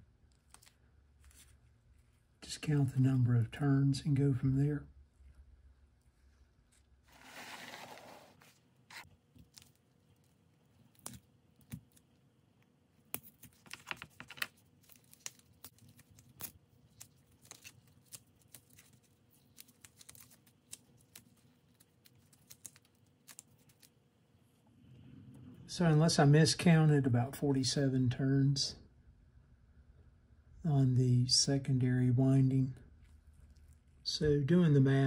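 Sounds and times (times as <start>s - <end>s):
small clicks and crackles: 0.2s - 2.1s, 9.0s - 24.0s
brittle paper tearing: 13.4s - 23.9s.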